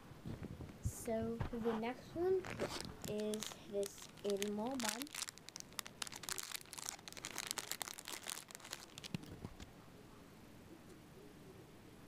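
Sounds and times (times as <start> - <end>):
faint handling sounds: 0.2 - 9.8
plastic packaging crinkling: 2.4 - 9.7.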